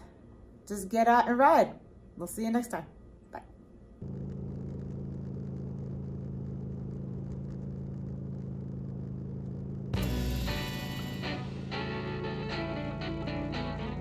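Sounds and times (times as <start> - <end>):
motorcycle engine droning: 4.0 - 14.0
guitar music: 10.0 - 14.0.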